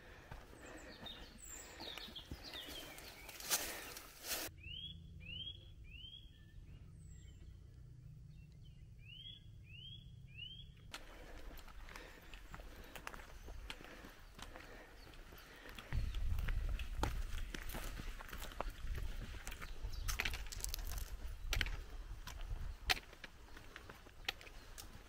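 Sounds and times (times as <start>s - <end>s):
footsteps and rustling on path: 0.0s - 4.5s, 10.9s - 25.0s.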